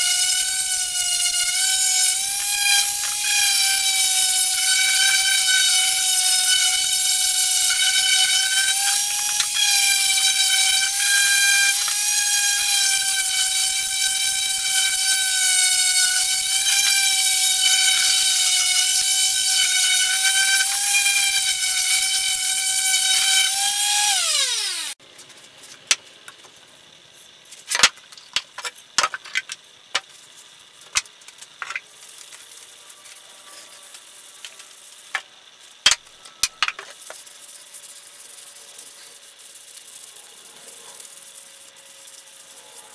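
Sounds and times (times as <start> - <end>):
electric sander whining: 0.0 - 25.0.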